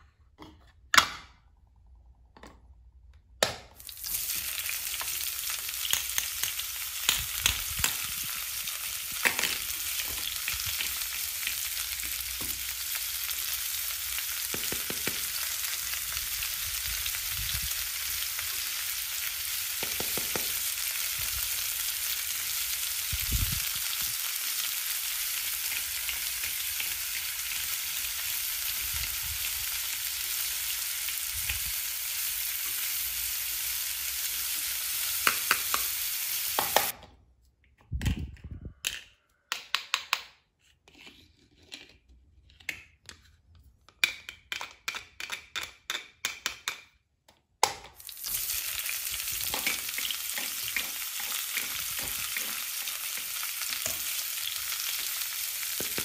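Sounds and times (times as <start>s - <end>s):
egg sizzling in a pan: 3.8s - 36.9s, 48.0s - 56.0s.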